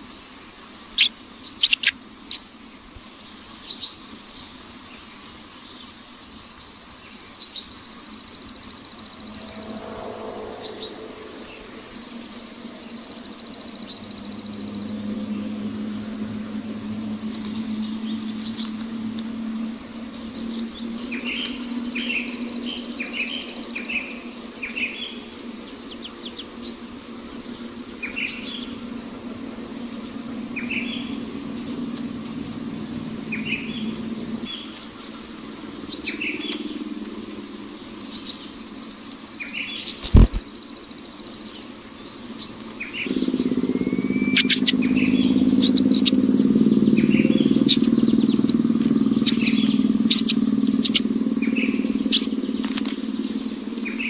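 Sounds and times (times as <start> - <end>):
high-pitched insect trill: 0.0 - 54.0
nestlings cheeping: 1.6 - 2.4, 40.0 - 40.4, 43.1 - 51.2.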